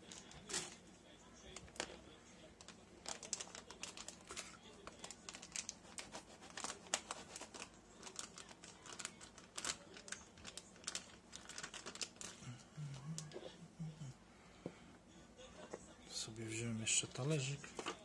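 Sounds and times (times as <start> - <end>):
plastic bag crinkling: 1.4 - 13.4.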